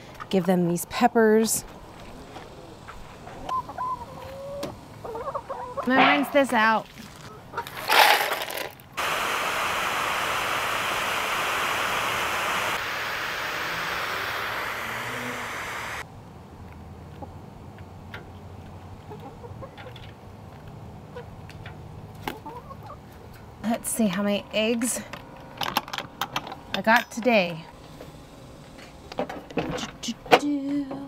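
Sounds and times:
garden hose spraying water: 8.0 - 16.0.

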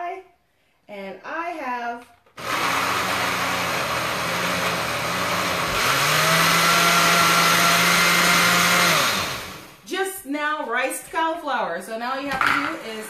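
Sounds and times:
blender chopping vegetables in water: 2.4 - 9.8.

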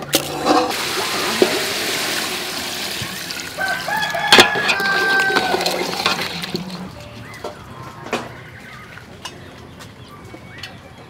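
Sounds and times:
curry hissing and bubbling: 0.0 - 4.0
rooster crowing: 3.4 - 6.4.

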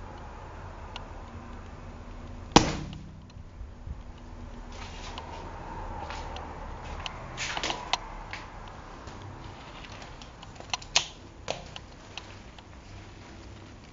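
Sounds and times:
umbrella mechanism clicks: 10.1 - 12.3.

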